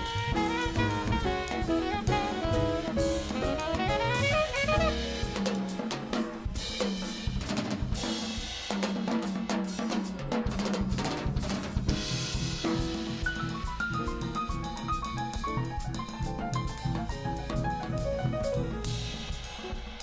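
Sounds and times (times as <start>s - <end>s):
jazz quartet playing: 0.0s - 6.6s, 12.7s - 19.3s
snare and bass drum hits: 0.0s - 20.0s.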